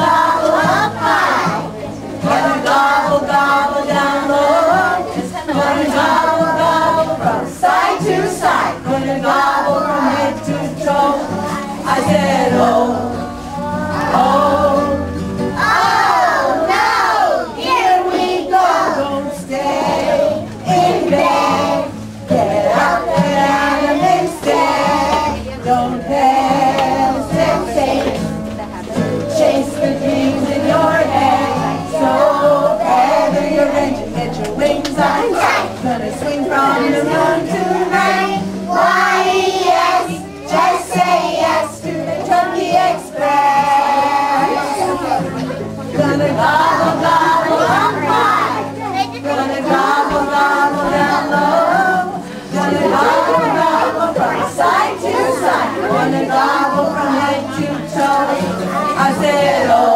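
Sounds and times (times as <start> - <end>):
children singing together: 0.0 - 59.9.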